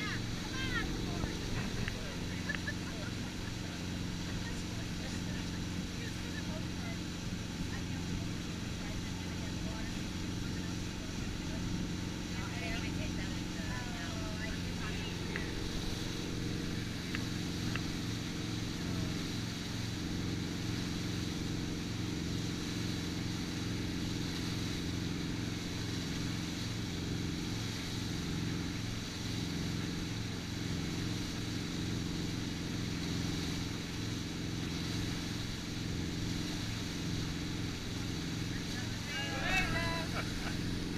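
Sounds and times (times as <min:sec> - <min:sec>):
boat engine running: 0:00.0 - 0:40.9
churning water rushing: 0:00.0 - 0:40.9.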